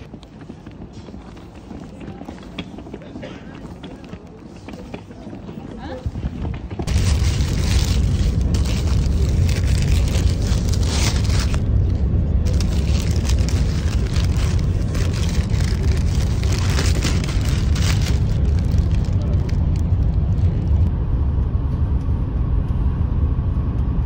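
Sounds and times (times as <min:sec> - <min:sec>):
low rumble of moving vehicle: 0:00.0 - 0:24.0
paper wrapper crinkling: 0:06.9 - 0:20.9.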